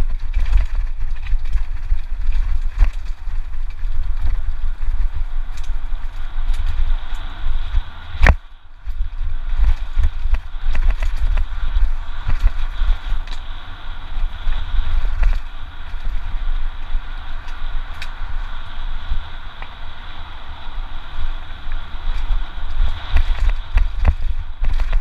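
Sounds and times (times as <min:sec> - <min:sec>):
tyres crunching over stones: 0:00.0 - 0:13.5, 0:22.1 - 0:25.0
bike clicks and rattles: 0:00.0 - 0:25.0
wind buffeting microphone: 0:00.0 - 0:25.0.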